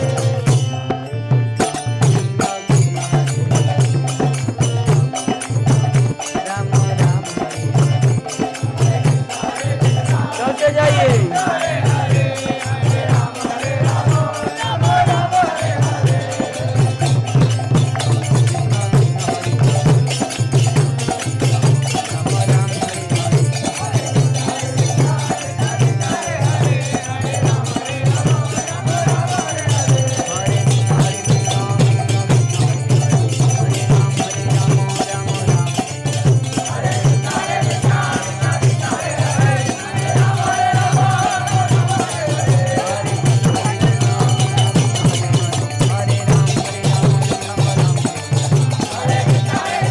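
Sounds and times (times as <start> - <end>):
steady drum beat: 0.0 - 49.9
jingling hand cymbals: 1.6 - 49.9
voices chanting: 8.9 - 17.3, 23.8 - 31.2, 36.6 - 44.9, 48.7 - 49.9.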